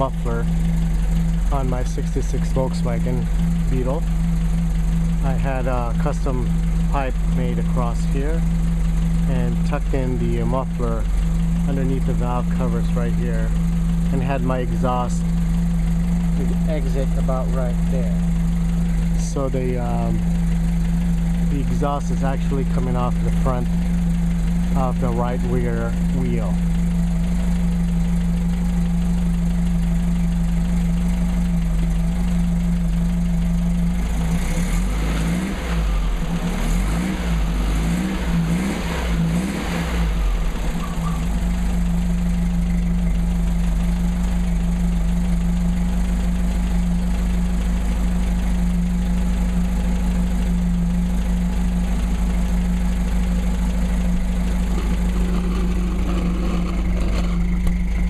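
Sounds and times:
car engine idling and revving: 0:00.0 - 0:58.0.

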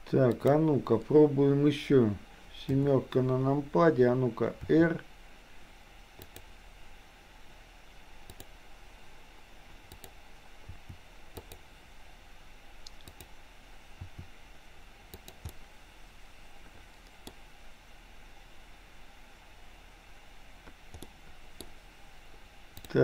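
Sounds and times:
faint steady hum: 0:00.0 - 0:23.0
computer mouse clicks: 0:00.3 - 0:00.6, 0:06.2 - 0:06.5, 0:08.2 - 0:08.5, 0:09.9 - 0:11.6, 0:12.8 - 0:13.3, 0:15.1 - 0:15.6, 0:17.0 - 0:17.4, 0:20.7 - 0:21.8, 0:22.8 - 0:23.0.

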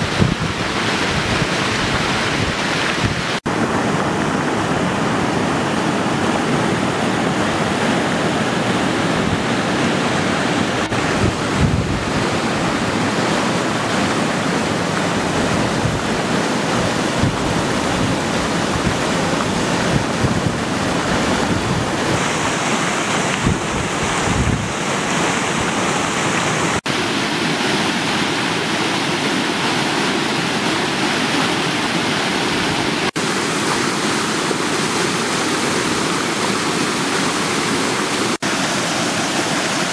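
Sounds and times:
wind gusting on microphone: 0:00.0 - 0:26.9
water rushing over weir: 0:00.0 - 0:39.9.

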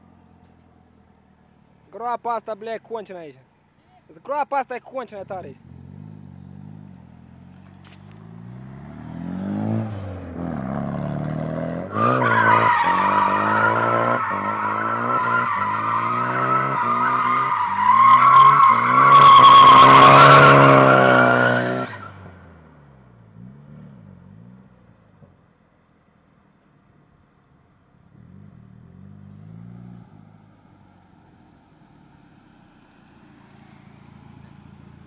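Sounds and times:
car engine revving: 0:05.6 - 0:24.8
tyres squealing: 0:11.9 - 0:22.1.

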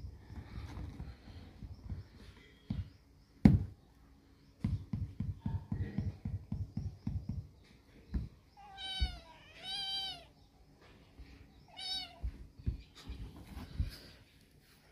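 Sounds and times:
kitten meowing: 0:08.6 - 0:10.3, 0:11.7 - 0:12.3
hand patting on woven seat: 0:12.1 - 0:14.2.

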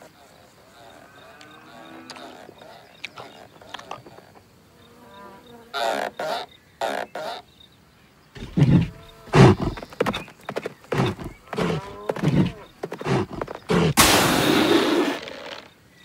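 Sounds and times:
deep hoof thuds: 0:08.4 - 0:14.6
animal grunts: 0:08.4 - 0:15.6.

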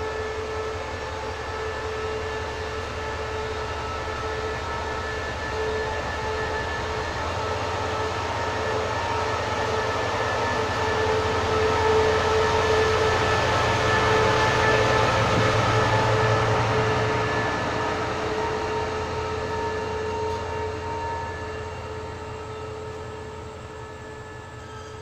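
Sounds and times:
locomotive engine rumble and whine: 0:00.0 - 0:25.0.

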